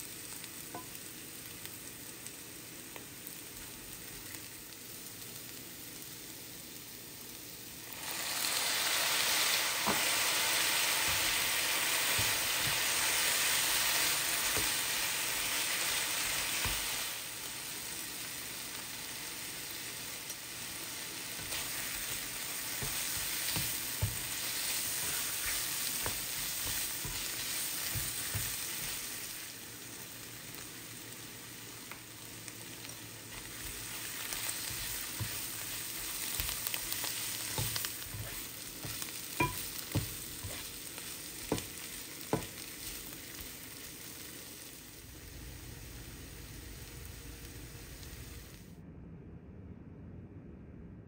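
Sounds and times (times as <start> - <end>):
mushrooms sizzling in a pan: 0.0 - 48.6
spatula scraping a pan: 21.3 - 29.1, 33.4 - 43.0.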